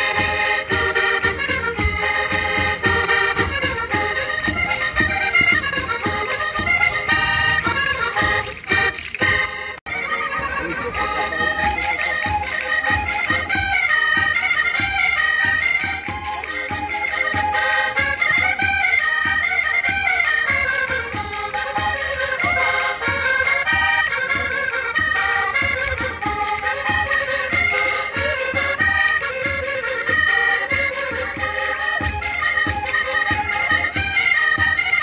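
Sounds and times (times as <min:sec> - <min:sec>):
steady drum beat: 0:00.0 - 0:09.5
squeezebox melody: 0:15.1 - 0:18.6.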